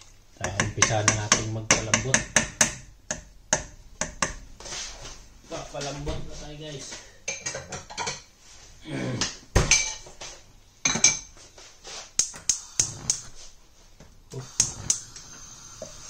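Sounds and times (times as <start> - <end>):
gas igniter clicking: 12.2 - 13.3, 14.3 - 16.0.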